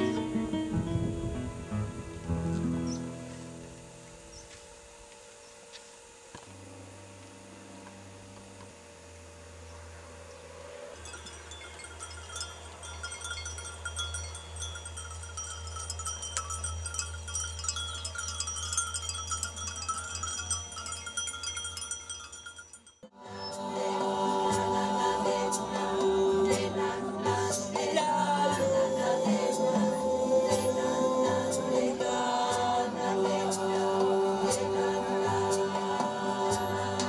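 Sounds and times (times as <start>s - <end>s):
low steady hum: 0.0s - 37.0s
livestock bells jingling: 10.9s - 23.0s.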